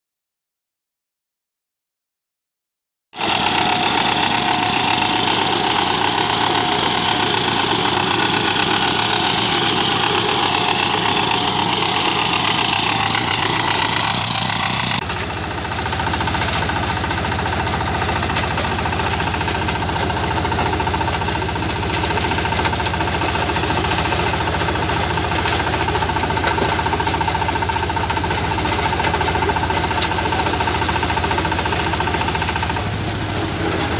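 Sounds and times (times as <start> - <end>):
diesel tiller engine knocking: 3.2 - 33.9
tines tilling dry soil: 3.2 - 33.9.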